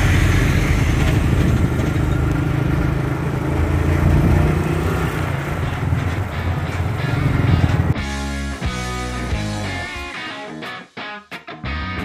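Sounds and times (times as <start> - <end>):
motorcycle engine running: 0.0 - 8.0.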